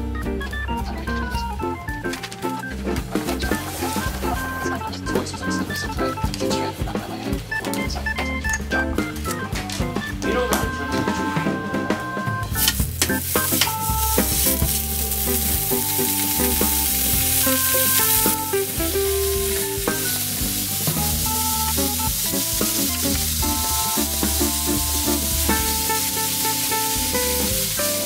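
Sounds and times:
meat sizzling in a frying pan: 12.6s - 28.0s.

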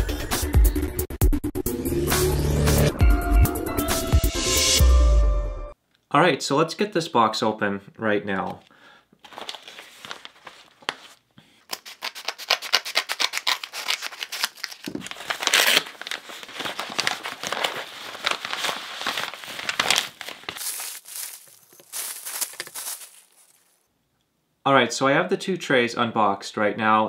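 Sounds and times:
paper mailer crinkling and tearing: 9.2s - 23.7s
plastic wrapping rustling: 9.2s - 23.9s.

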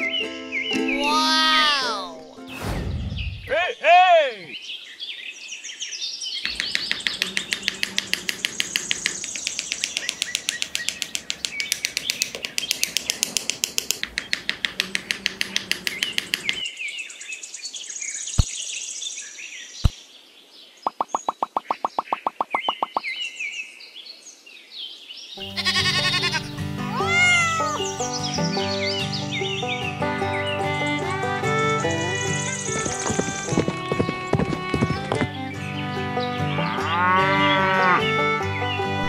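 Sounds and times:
birds chirping trill: 0.0s - 1.8s, 4.4s - 39.0s
music: 0.0s - 2.6s, 25.4s - 39.0s
sharp taps: 6.4s - 16.6s, 20.9s - 23.0s.

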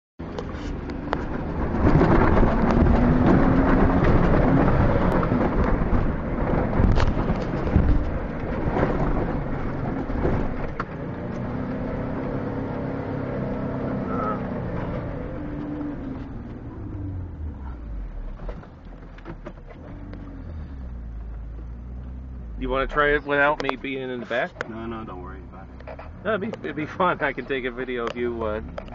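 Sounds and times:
car body knocking and rattling: 0.2s - 11.4s, 18.2s - 20.3s
car engine revving: 0.2s - 28.9s
tyres rumbling in sand: 0.2s - 28.9s.

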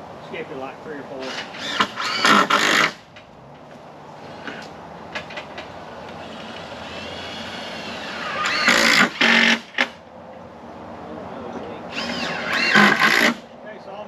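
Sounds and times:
background noise: 0.0s - 14.0s
cordless drill driving screws: 1.2s - 3.0s, 6.2s - 10.0s, 11.9s - 13.4s.

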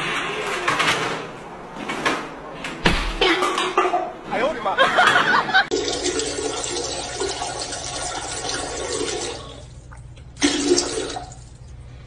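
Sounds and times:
toilet flushing: 5.0s - 12.0s.

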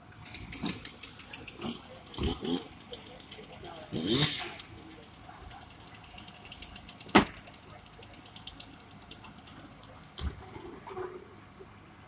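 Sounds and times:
faint clicks and knocks: 4.6s - 11.0s.

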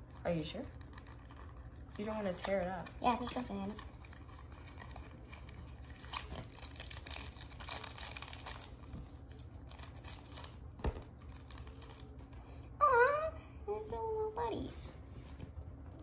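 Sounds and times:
plastic wrapper crinkling: 0.6s - 12.4s.

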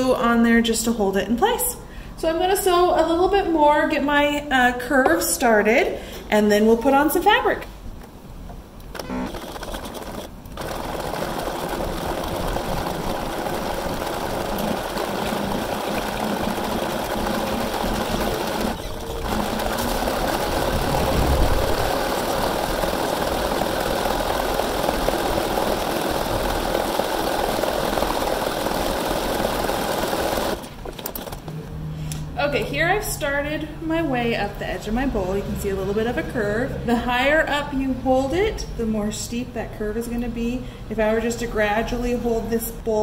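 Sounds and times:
sewing machine running: 9.0s - 31.4s.

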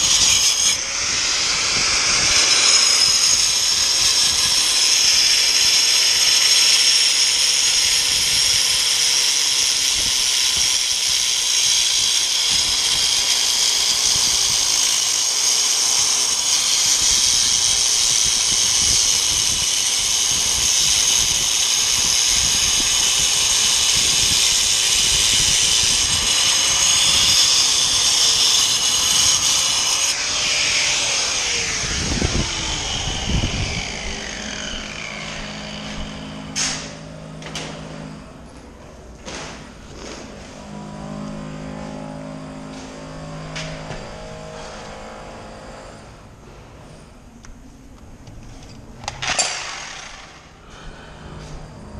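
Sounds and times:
angle grinder whining: 0.0s - 47.6s, 48.2s - 51.9s.

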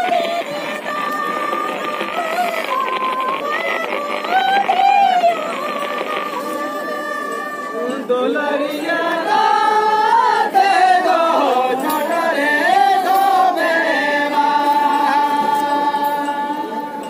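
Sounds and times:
group singing in unison: 0.0s - 17.0s.

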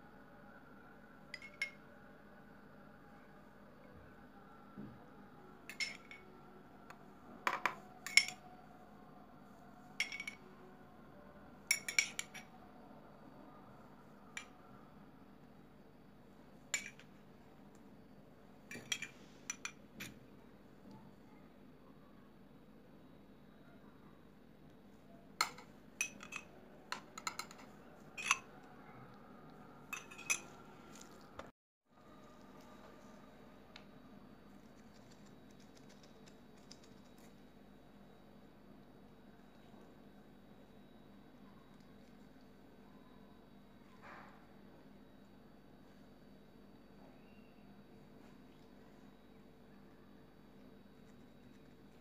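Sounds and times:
kitchenware clinking: 10.0s - 10.4s, 18.7s - 20.1s, 25.4s - 28.5s, 29.9s - 31.2s
utensil clinking against dish: 29.9s - 31.1s.

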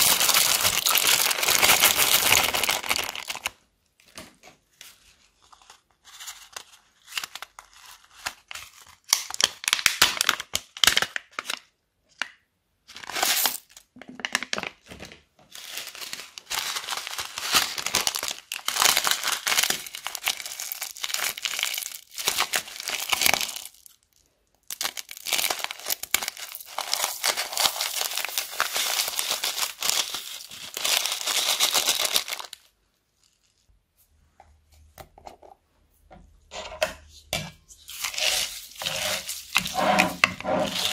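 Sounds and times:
plastic bags crinkling: 0.0s - 4.2s, 13.0s - 33.6s, 37.8s - 40.9s.

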